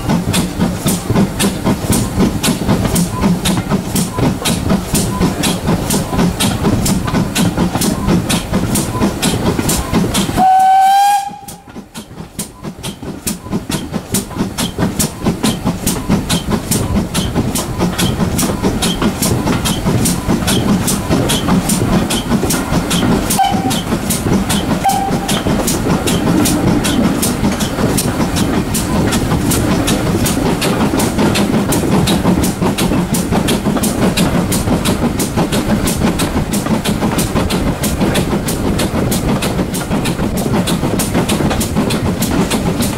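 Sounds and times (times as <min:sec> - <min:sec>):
steam locomotive chugging: 0:00.0 - 0:42.9
train wheels clattering on track: 0:00.0 - 0:42.9
steam whistle: 0:10.4 - 0:11.7, 0:23.4 - 0:23.8, 0:24.8 - 0:25.4.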